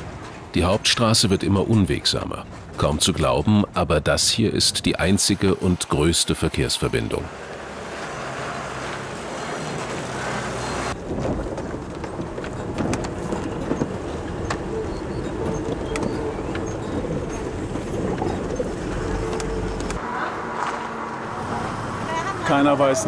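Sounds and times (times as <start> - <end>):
minibus engine droning: 0.0 - 23.0
street traffic noise: 0.0 - 23.0
vehicle body rattling: 8.0 - 20.0.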